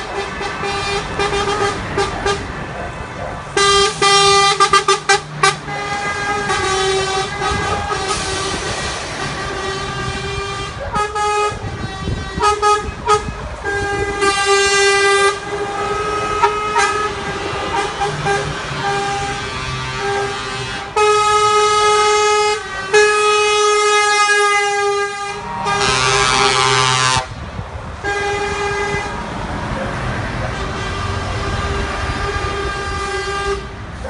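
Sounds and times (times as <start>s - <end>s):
air horn blasts: 0.0s - 2.5s, 3.6s - 27.4s, 28.0s - 29.2s, 30.5s - 33.8s
rising and falling horn: 0.0s - 2.9s, 3.6s - 27.4s
diesel lorry engines: 0.0s - 34.0s.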